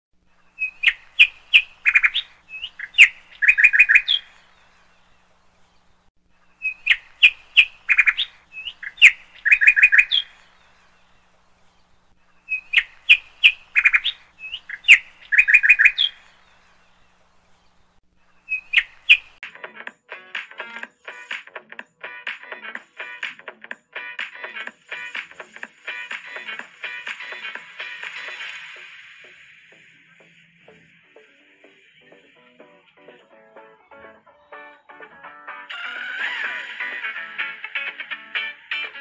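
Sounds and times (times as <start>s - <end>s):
songbird chirping and trilling: 0.4s - 19.4s
music: 19.4s - 39.0s.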